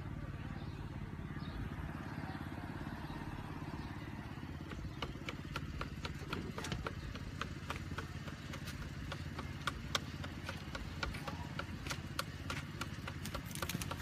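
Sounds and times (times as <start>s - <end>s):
car engine running low: 0.0s - 14.0s
sharp evenly spaced clicks: 4.5s - 14.0s.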